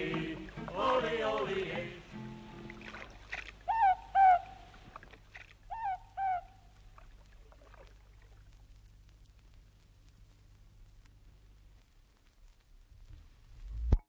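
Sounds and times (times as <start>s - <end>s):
owl calling two-note hoot: 3.6s - 5.0s, 5.7s - 6.8s
faint scattered clicks: 6.7s - 12.8s.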